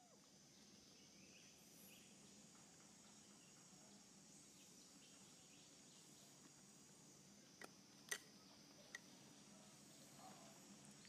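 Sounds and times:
steady high hiss: 0.0s - 11.0s.

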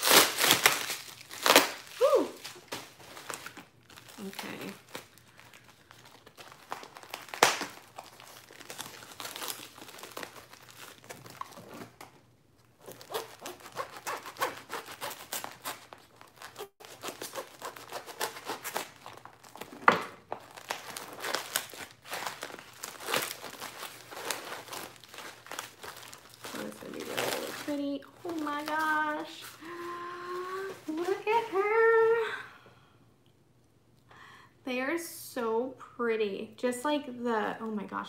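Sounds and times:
packaging tearing: 0.0s - 12.1s, 12.7s - 31.3s
sharp plastic crackles: 0.0s - 29.8s
plastic packaging crinkling: 0.0s - 31.8s.

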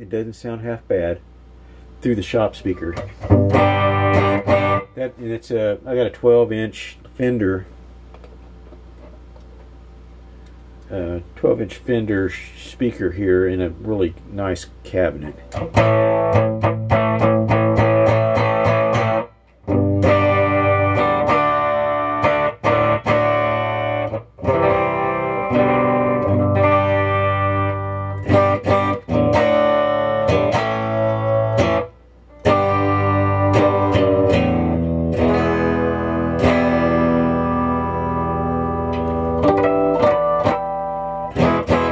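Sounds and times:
electric guitar chords strummed: 2.3s - 6.0s, 15.2s - 41.9s.

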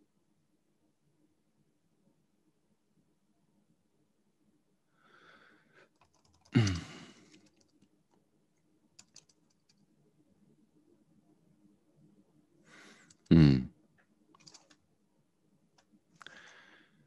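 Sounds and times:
soft breathy sound: 4.8s - 7.6s, 12.6s - 13.3s, 16.2s - 17.0s
keyboard typing: 5.9s - 8.2s, 9.0s - 9.8s, 14.3s - 14.8s.

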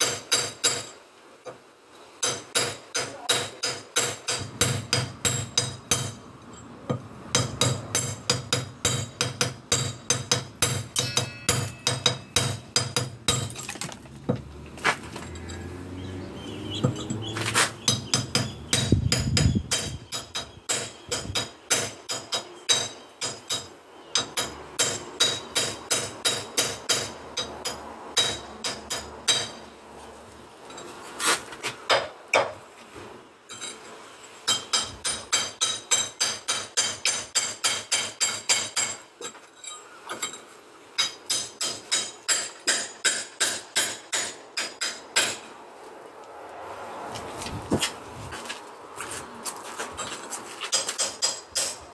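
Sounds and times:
hammer blows on concrete block: 17.8s - 27.1s.

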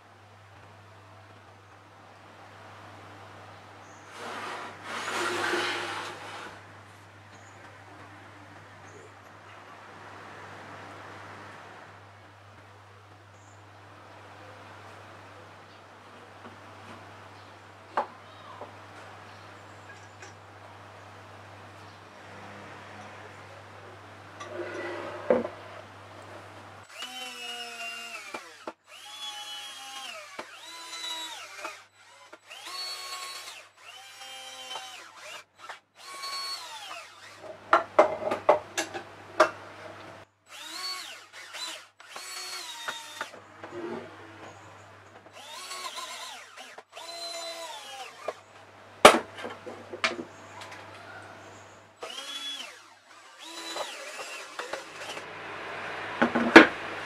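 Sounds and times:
cordless drill boring into wood: 26.9s - 37.4s, 40.5s - 43.4s, 45.3s - 48.4s, 52.0s - 55.2s.

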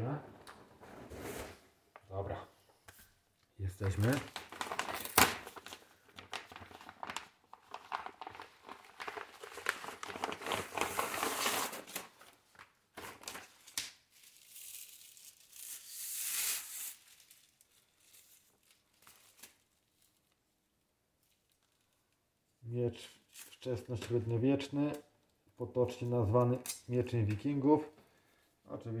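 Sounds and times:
plastic packaging crinkling: 3.8s - 15.9s.

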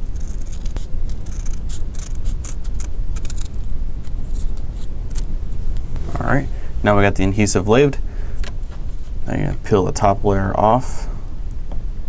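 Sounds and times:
adhesive strips crinkling: 0.0s - 6.2s.

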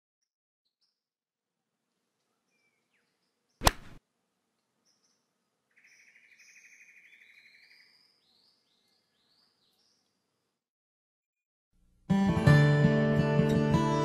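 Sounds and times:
birds chirping and trilling: 2.2s - 3.6s, 4.8s - 10.2s
golf club striking ball: 3.6s - 4.0s.

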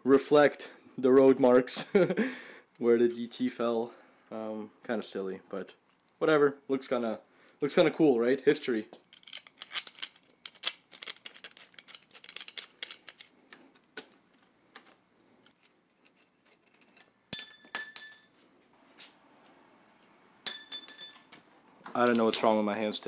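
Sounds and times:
metal parts clicking together: 9.1s - 17.5s
metal piece dropped with clink: 15.6s - 18.4s, 20.0s - 21.4s.

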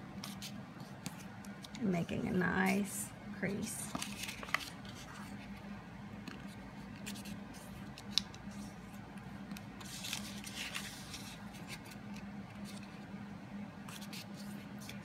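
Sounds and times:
low steady hum: 0.0s - 15.0s
paper rustling: 3.7s - 5.6s, 6.2s - 13.1s, 13.9s - 15.0s.

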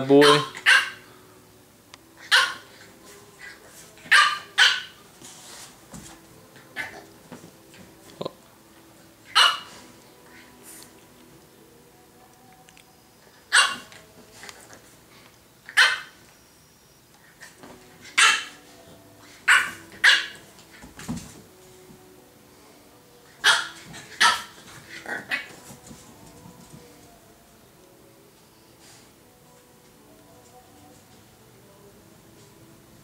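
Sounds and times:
puppy yapping: 0.2s - 1.0s, 2.2s - 2.7s, 4.1s - 5.0s, 9.3s - 9.7s, 13.5s - 13.9s, 15.7s - 16.2s, 18.1s - 18.6s, 19.5s - 20.4s, 23.4s - 25.5s.

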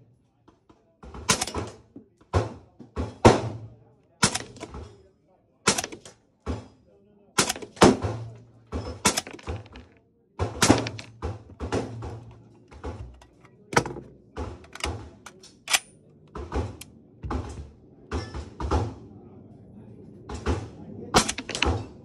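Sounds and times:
suppressed rifle shots: 4.2s - 4.7s, 5.7s - 6.1s, 7.4s - 8.2s, 10.6s - 12.0s, 21.2s - 21.8s.

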